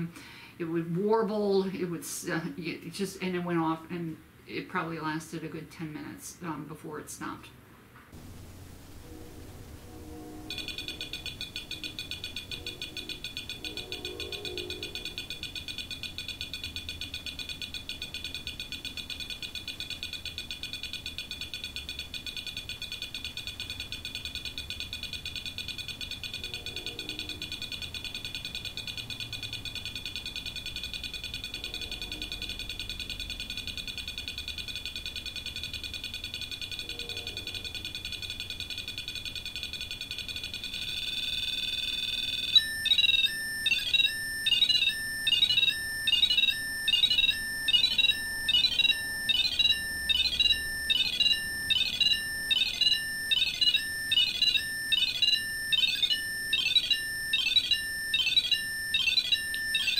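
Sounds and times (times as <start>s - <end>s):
rapid electronic beeping: 10.5s - 59.9s
electronic warbling tone: 40.4s - 59.9s.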